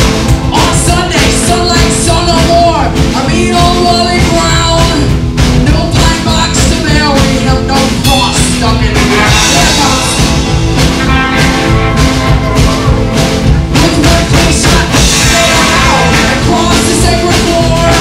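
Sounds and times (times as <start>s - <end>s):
rock and roll band playing: 0.0s - 18.0s.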